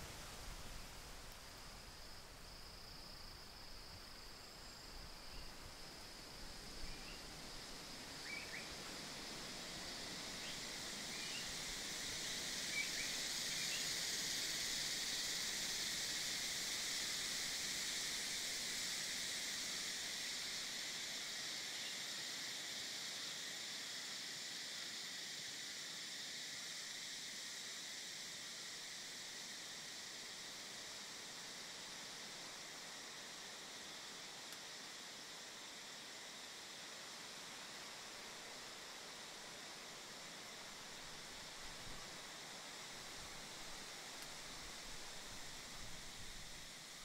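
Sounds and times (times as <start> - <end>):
insects chirping chorus: 0.0 - 47.0.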